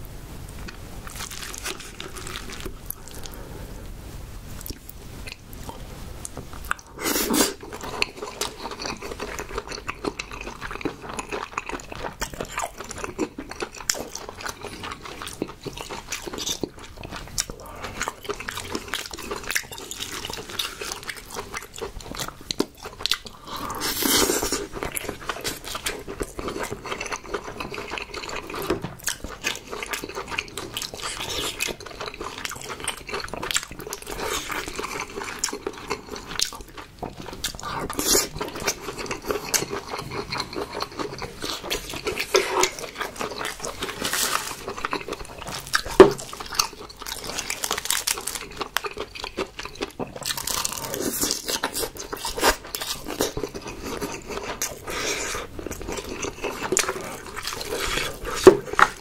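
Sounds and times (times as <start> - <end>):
chewing soft crab meat: 4.6 - 59.0.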